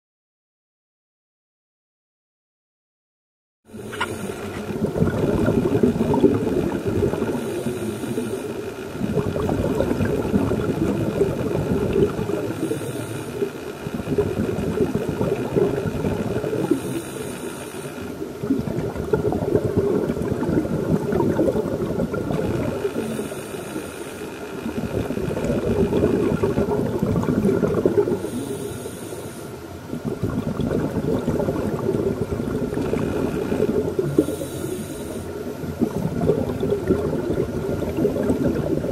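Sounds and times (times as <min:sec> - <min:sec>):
scuba regulator inhalation hiss: 0:03.7 - 0:04.8, 0:07.2 - 0:08.9, 0:12.4 - 0:13.8, 0:16.5 - 0:18.2, 0:22.6 - 0:24.6, 0:28.0 - 0:29.7, 0:33.0 - 0:35.5
exhaled bubbles burbling: 0:03.7 - 0:08.3, 0:09.0 - 0:17.1, 0:18.2 - 0:23.4, 0:24.5 - 0:28.7, 0:29.8 - 0:34.8, 0:35.4 - 0:38.9.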